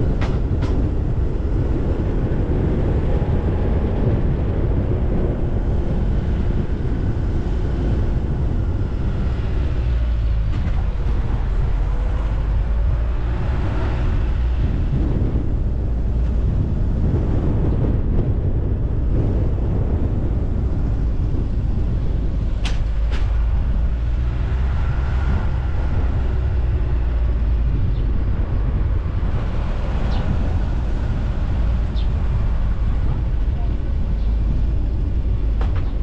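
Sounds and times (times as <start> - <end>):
car engine and tyres rumbling: 0.0 - 36.0.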